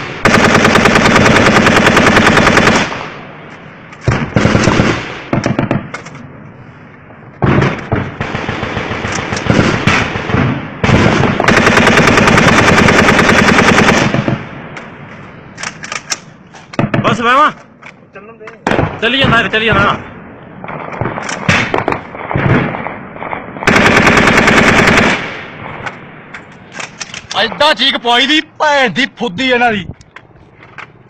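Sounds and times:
rifle firing automatic bursts: 0.2 - 3.0, 4.1 - 5.8, 7.4 - 14.4, 23.2 - 25.3.

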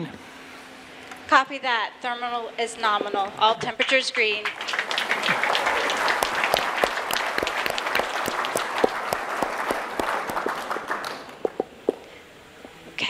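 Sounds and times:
crowd applauding: 3.8 - 12.1.

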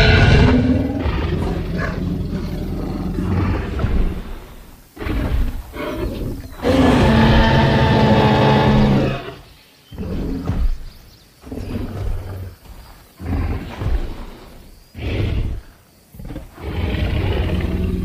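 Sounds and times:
dinosaur roar: 0.0 - 12.6, 13.2 - 18.0
growling roars: 0.0 - 18.0.

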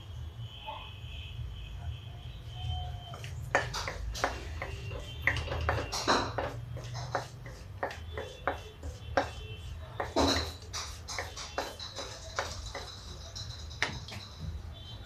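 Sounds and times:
wooden spoon scraping a pan: 3.5 - 13.9.

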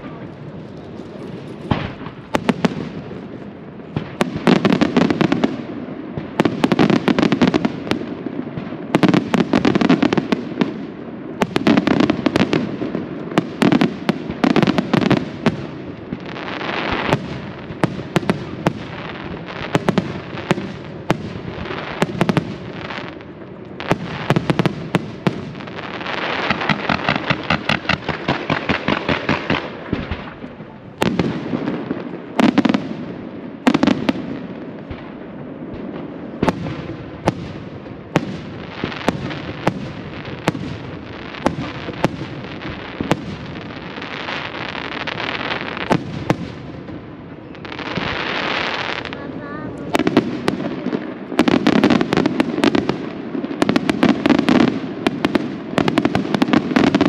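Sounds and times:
firework crackle: 0.0 - 57.0
firework shells bursting: 25.7 - 30.4.

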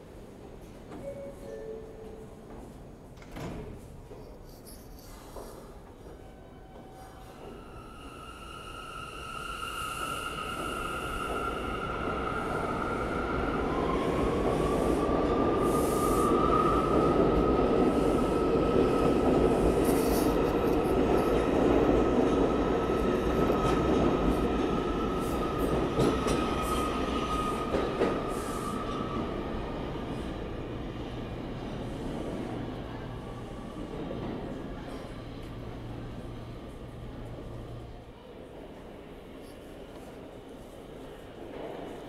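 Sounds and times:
subway train rumble: 0.0 - 42.0.

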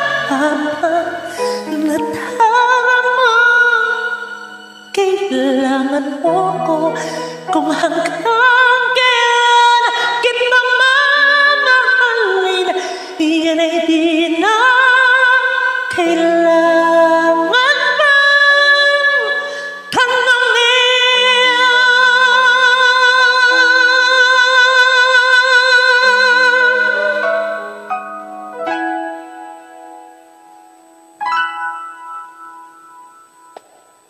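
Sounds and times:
man singing with vibrato: 0.0 - 27.9
keyboard accompaniment: 22.8 - 34.0.

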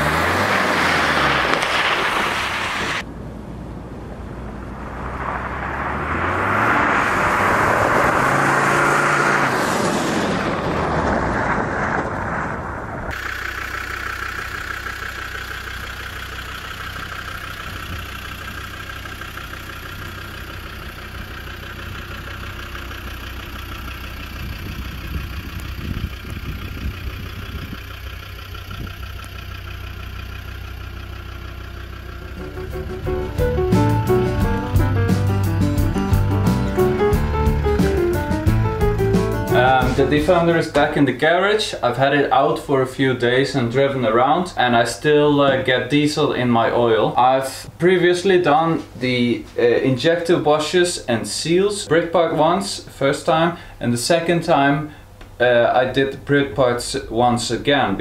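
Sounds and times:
diesel engine driving past: 0.0 - 41.0
diesel engine idling: 12.8 - 48.3, 49.0 - 53.9, 54.6 - 55.6.

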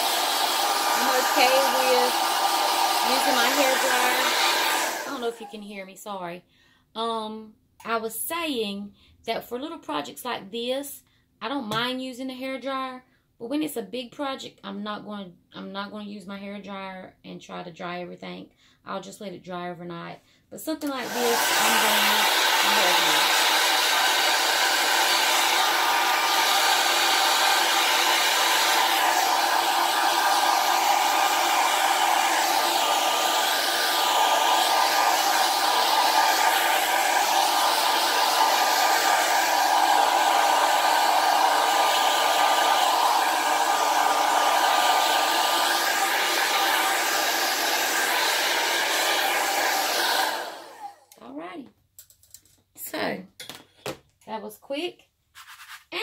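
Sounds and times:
hair dryer blowing: 0.0 - 5.8, 20.8 - 51.2.

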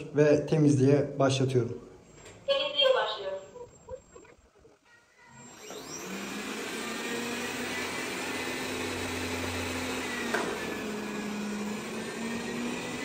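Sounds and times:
robot vacuum whirring: 3.5 - 13.0.

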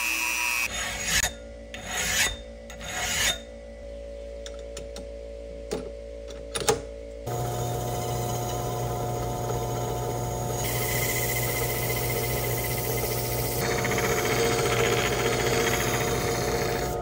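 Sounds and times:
power tool whine: 7.3 - 17.0.

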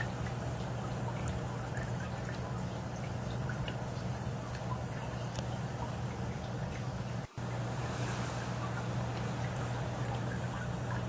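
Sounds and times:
water trickling and dripping: 0.0 - 11.0
low hum: 6.8 - 11.0.

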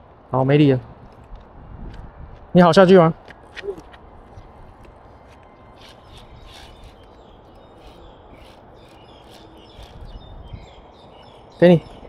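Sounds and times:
high bird chirps: 5.5 - 12.0.

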